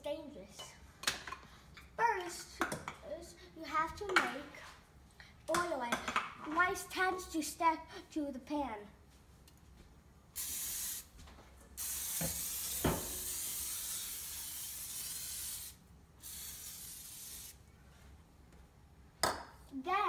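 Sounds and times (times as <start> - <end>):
cooking oil spray hissing: 10.4 - 11.2, 11.8 - 17.6.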